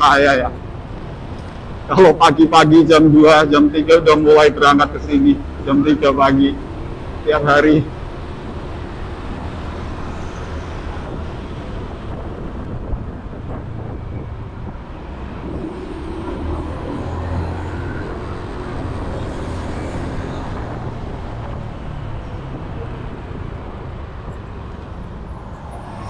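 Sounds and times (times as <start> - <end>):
road and wind noise: 0.0 - 26.0.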